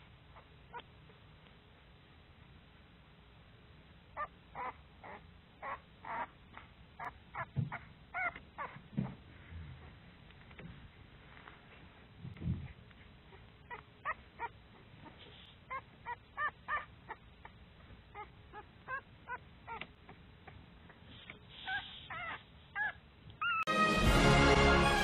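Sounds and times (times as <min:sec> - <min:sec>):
puppies whimpering: 0:07.0 - 0:08.8, 0:13.7 - 0:19.8, 0:21.6 - 0:23.7.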